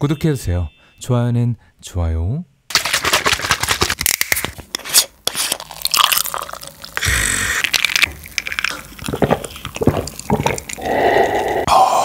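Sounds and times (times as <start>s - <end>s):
drink pouring into glass: 5.6s - 7.0s, 7.6s - 11.6s
person gulping: 5.6s - 12.0s.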